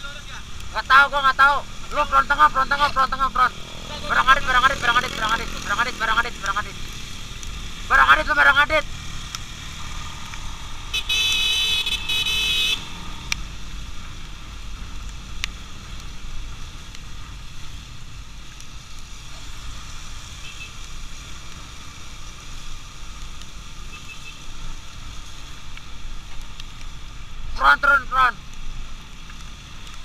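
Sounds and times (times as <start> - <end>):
motorcycle engine rumble: 0.0 - 8.1
vehicle horn blaring: 10.9 - 12.9.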